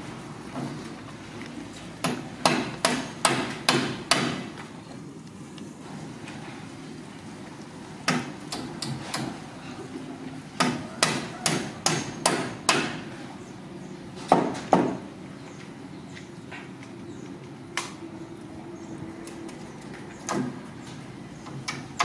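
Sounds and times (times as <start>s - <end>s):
sharp knocks: 14.2s - 15.0s.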